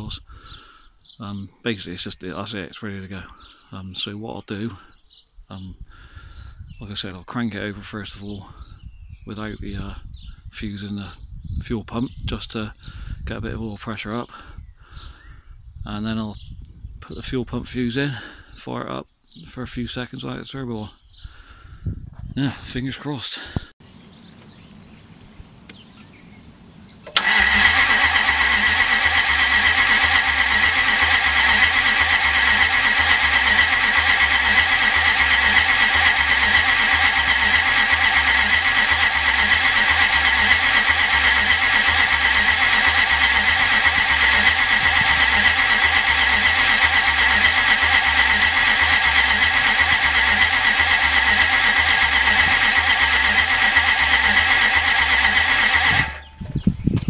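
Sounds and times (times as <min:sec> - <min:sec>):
engine cranking on starter: 0:00.0 - 0:00.2, 0:27.0 - 0:56.6.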